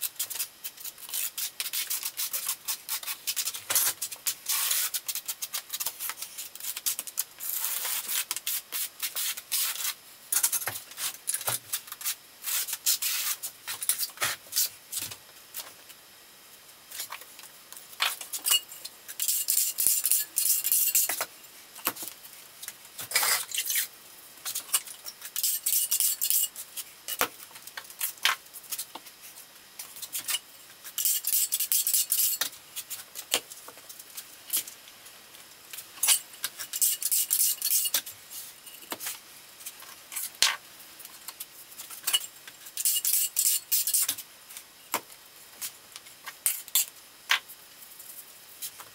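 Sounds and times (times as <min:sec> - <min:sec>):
trowel scraping mortar: 0:00.2 - 0:10.0, 0:23.0 - 0:23.9.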